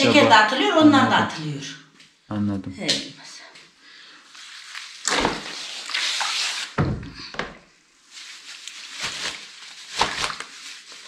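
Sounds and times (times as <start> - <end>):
bag rustling in plastic basin: 4.3 - 6.8, 8.0 - 11.0.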